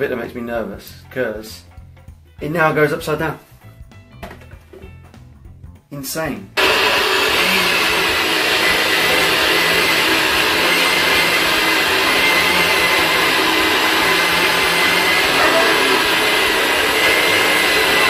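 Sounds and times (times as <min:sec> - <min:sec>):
blender motor whirring: 0:06.6 - 0:18.0.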